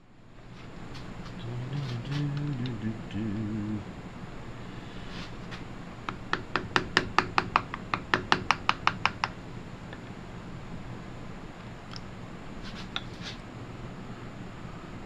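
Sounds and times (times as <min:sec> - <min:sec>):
hammer tapping a screwdriver: 0:06.1 - 0:09.4.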